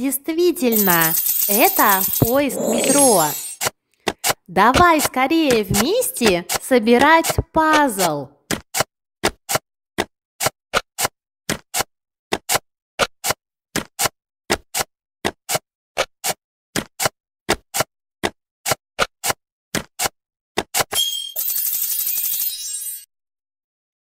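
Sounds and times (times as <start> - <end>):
bright chiming jingle: 0.7 - 3.6.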